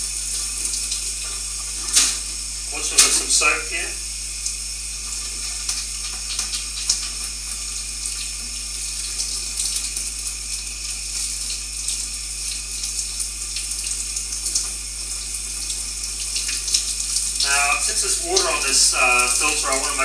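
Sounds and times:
tap water running into sink: 0:04.4 - 0:20.0.

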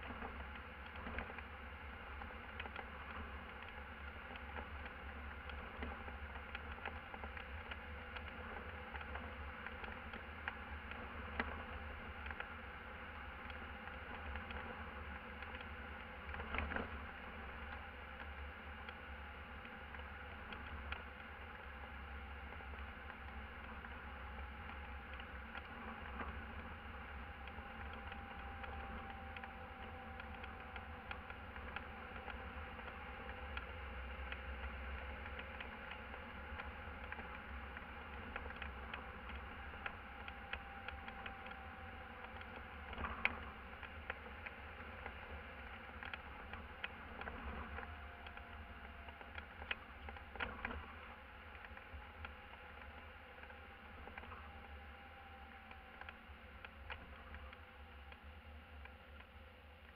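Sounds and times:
faint humming tones: 0:00.0 - 0:59.9
muffled engine and road noise: 0:00.0 - 0:59.9.

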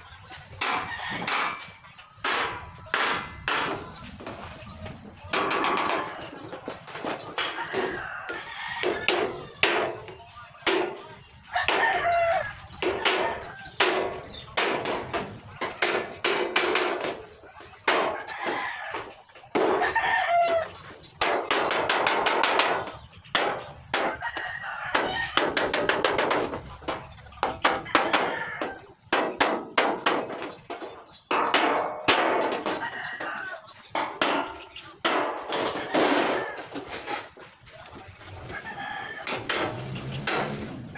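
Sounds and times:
chickens clucking: 0:00.0 - 0:40.9
hammer striking metal sheet: 0:00.6 - 0:04.0, 0:13.8 - 0:18.1, 0:29.1 - 0:32.8, 0:33.9 - 0:36.4, 0:39.3 - 0:40.7
rooster crowing: 0:07.5 - 0:09.1, 0:11.5 - 0:13.8, 0:19.8 - 0:20.8, 0:27.8 - 0:28.9, 0:38.5 - 0:40.0.

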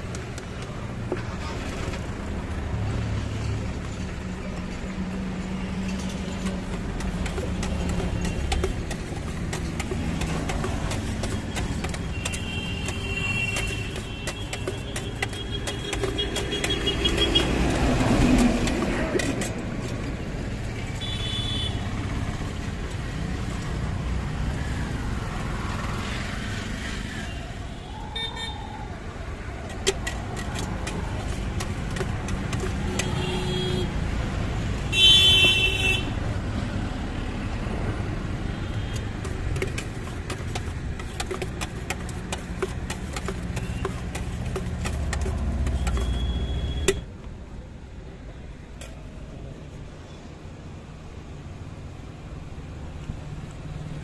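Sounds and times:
road traffic rumble: 0:00.0 - 0:54.0
vehicle horns tooting: 0:21.0 - 0:21.8, 0:32.9 - 0:33.9, 0:34.9 - 0:36.2, 0:45.7 - 0:47.0.

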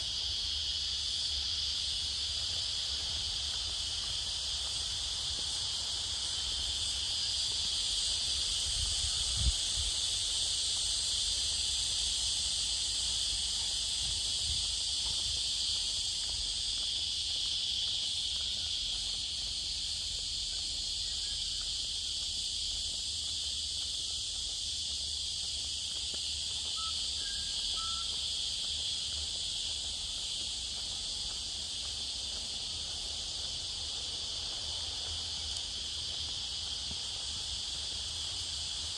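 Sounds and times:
cicadas chorus: 0:00.0 - 0:38.9
faint bird chirps: 0:26.8 - 0:28.2.

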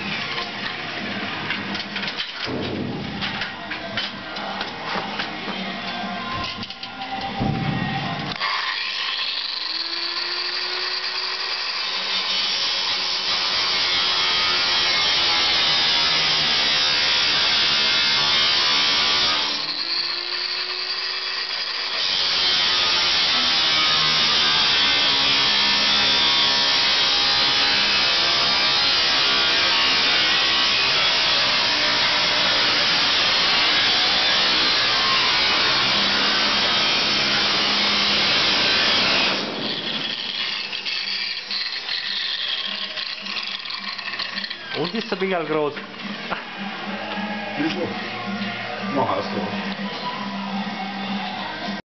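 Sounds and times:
grinder motor whine: 0:07.9 - 0:45.2
angle grinder cutting steel: 0:08.3 - 0:45.8.

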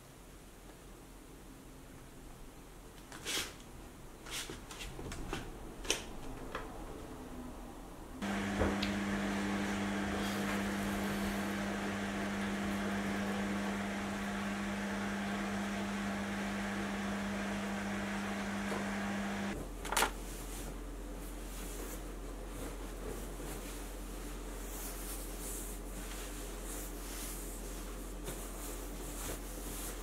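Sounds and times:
appliance motor humming and whirring: 0:08.2 - 0:19.6.

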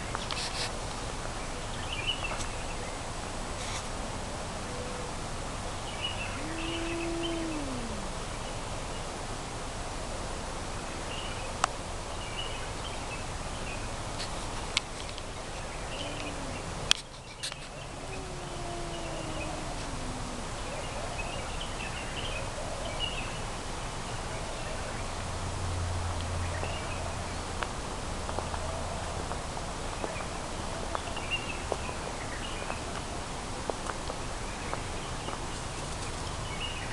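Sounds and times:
outdoor background noise: 0:00.0 - 0:36.9
faint bird chirps: 0:05.9 - 0:08.6, 0:15.6 - 0:22.4
cat yowling: 0:06.2 - 0:08.4, 0:15.9 - 0:16.9, 0:17.7 - 0:21.2.

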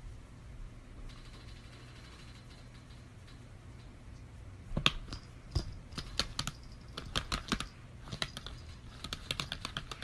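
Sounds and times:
laptop keyboard typing: 0:04.8 - 0:10.0.

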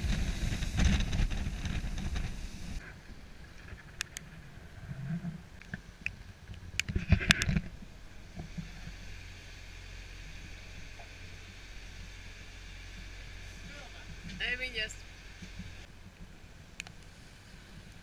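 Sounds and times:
hull rushing through waves: 0:00.0 - 0:02.8
wind on microphone: 0:00.0 - 0:09.4
steady low hum: 0:00.0 - 0:18.0
water sounds: 0:00.0 - 0:18.0.

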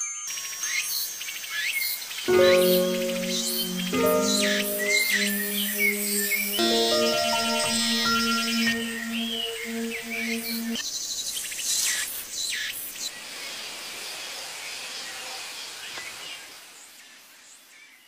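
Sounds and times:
music with held notes: 0:02.3 - 0:10.8.

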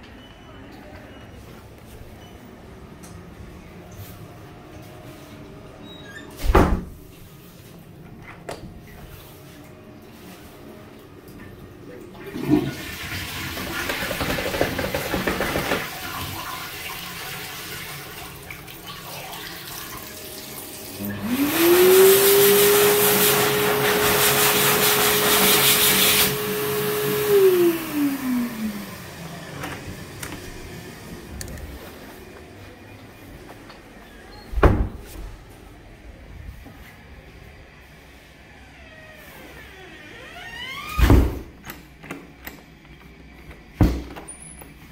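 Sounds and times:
running water from tap: 0:12.2 - 0:26.4
hand dryer blowing air: 0:21.0 - 0:32.0.

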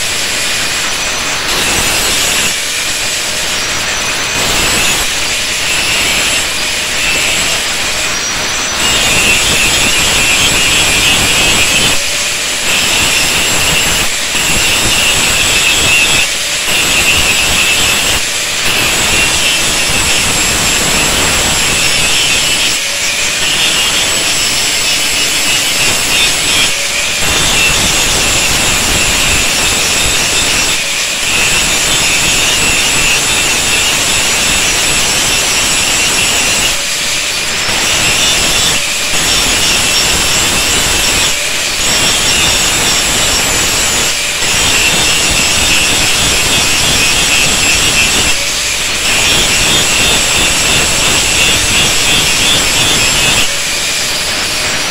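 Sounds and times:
angle grinder grinding steel: 0:00.0 - 0:54.9.

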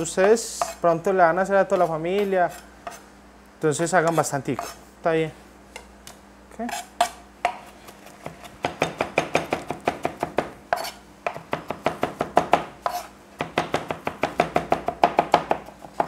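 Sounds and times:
knife chopping on cutting board: 0:06.7 - 0:16.0.

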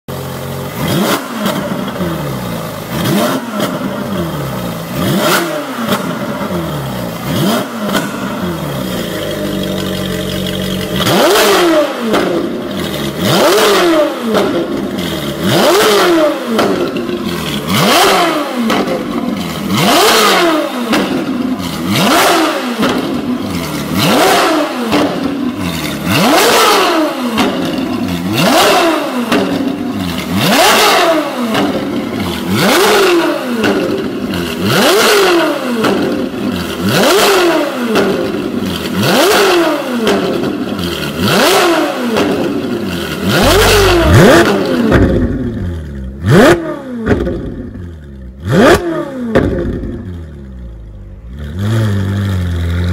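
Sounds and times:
sports car engine revving: 0:00.1 - 0:52.9
deep engine rumble: 0:42.7 - 0:46.2.

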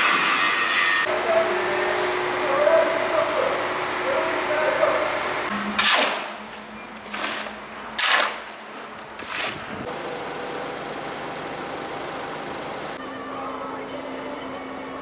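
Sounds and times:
tool scraping wet concrete: 0:05.8 - 0:09.8.

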